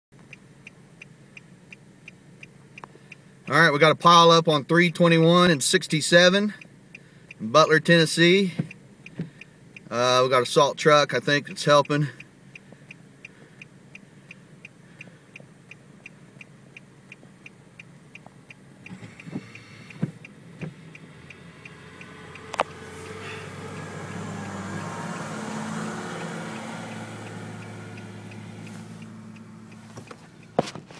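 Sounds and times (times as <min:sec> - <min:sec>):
truck diesel engine passing: 0:18.5 - 0:30.6.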